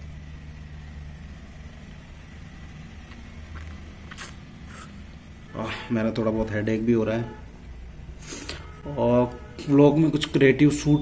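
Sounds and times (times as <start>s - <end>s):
low background hum: 0.0s - 11.0s
faint high tone: 8.6s - 11.0s.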